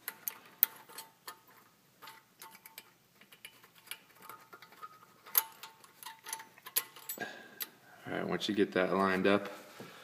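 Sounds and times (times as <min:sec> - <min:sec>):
small metallic clicks and taps: 0:00.0 - 0:07.7.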